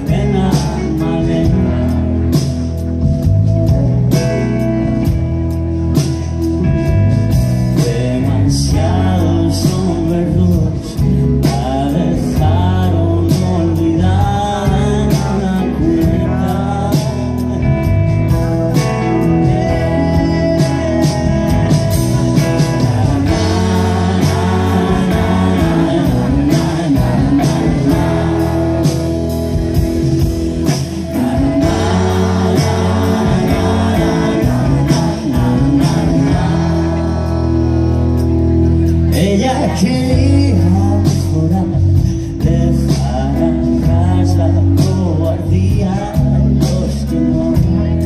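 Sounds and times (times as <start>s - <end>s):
man singing: 0.0s - 5.2s, 7.3s - 48.0s
bass guitar: 0.0s - 48.0s
electric guitars: 0.0s - 48.0s
steady drumbeat: 18.2s - 38.7s.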